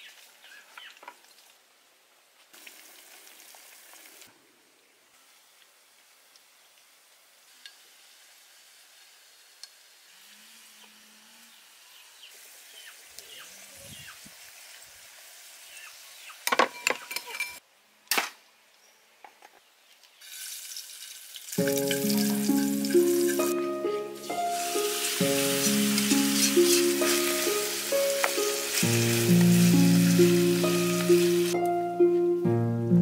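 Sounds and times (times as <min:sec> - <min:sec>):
food sizzling in a pan: 0:02.5 - 0:04.3, 0:05.2 - 0:16.5, 0:20.2 - 0:31.6.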